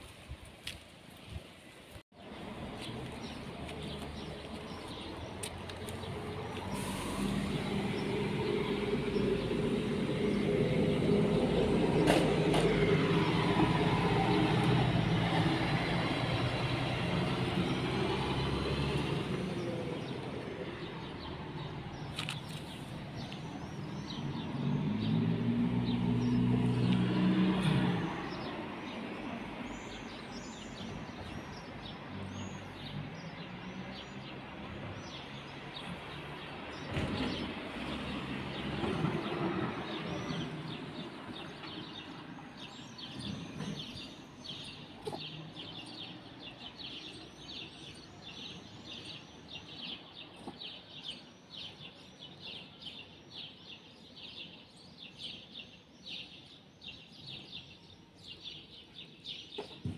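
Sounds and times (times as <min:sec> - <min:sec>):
small birds chirping: 0:00.6 - 0:59.9
vehicles passing: 0:02.2 - 0:59.9.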